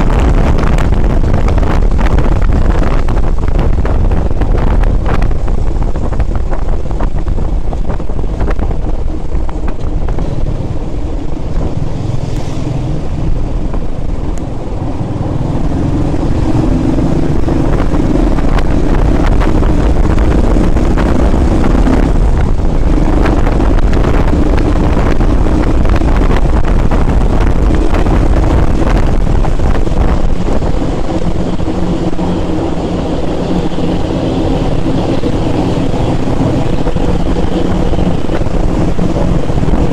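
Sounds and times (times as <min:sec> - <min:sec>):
motorcycle engine running: 0:00.0 - 0:39.9
wind rumble on microphone: 0:00.0 - 0:39.9.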